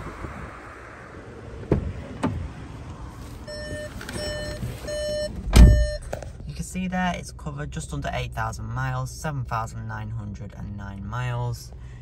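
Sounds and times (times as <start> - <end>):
car door clicks: 1.6 - 2.5, 3.6 - 6.4
car warning chime beeping: 3.4 - 6.2.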